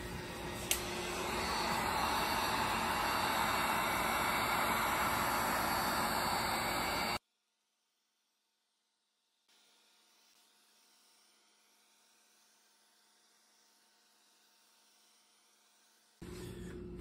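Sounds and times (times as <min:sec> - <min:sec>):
heat gun blowing hot air: 0:00.0 - 0:07.2.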